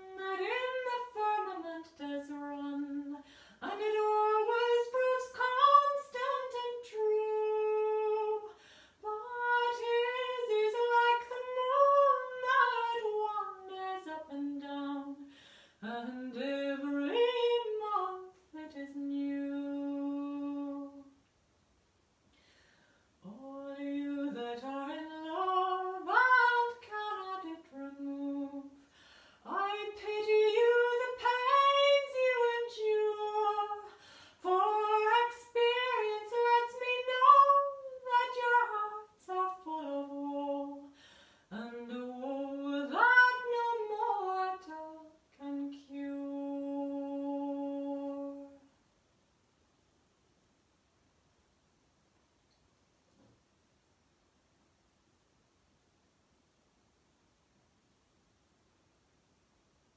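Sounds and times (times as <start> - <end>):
woman singing unaccompanied: 0.0 - 21.2, 23.2 - 48.7.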